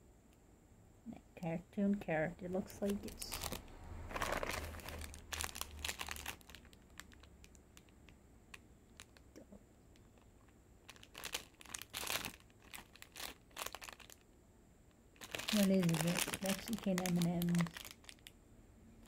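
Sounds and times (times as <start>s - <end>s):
candy wrapper crinkling: 2.7s - 14.3s, 15.2s - 18.4s.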